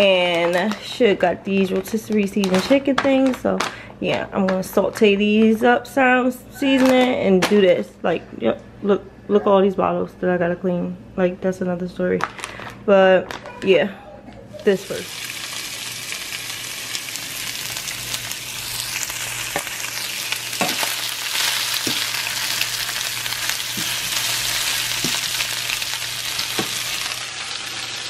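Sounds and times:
chicken sizzling in a frying pan: 0:14.7 - 0:28.0.

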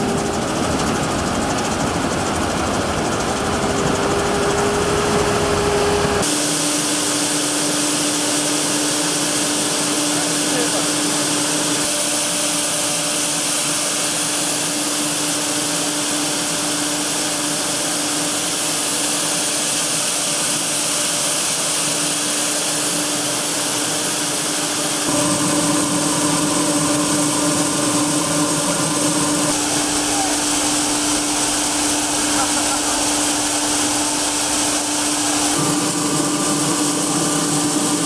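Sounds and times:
grain machinery humming: 0:00.0 - 0:38.0
moving grain hissing: 0:29.5 - 0:38.0.

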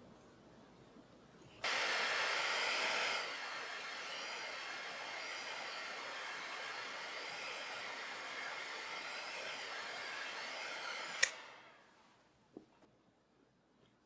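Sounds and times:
heat gun blowing: 0:01.6 - 0:12.0
heat gun switch click: 0:11.1 - 0:11.6.

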